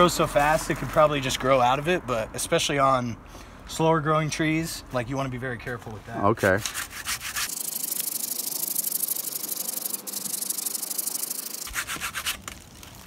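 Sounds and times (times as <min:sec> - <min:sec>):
hand saw rasping through branch: 0:06.4 - 0:12.6.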